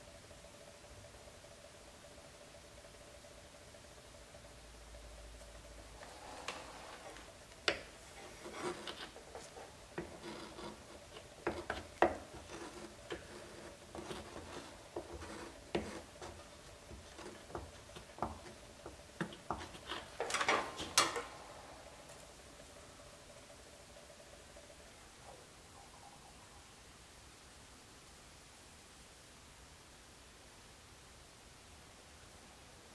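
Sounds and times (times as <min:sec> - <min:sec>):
welding iron scraping plastic: 0:06.1 - 0:21.2.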